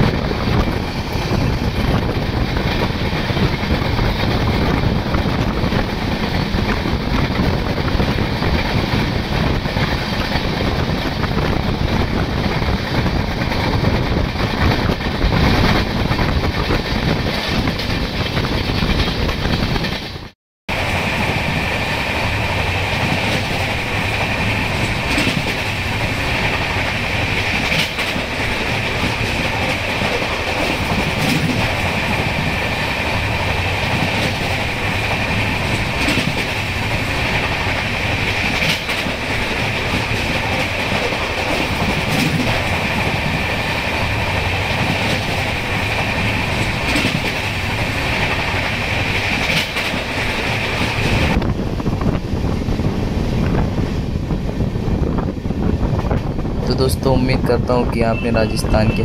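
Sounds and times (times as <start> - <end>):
train wheels rumbling on rails: 0.0 - 59.0
wheels clicking over rail joints: 22.3 - 52.0.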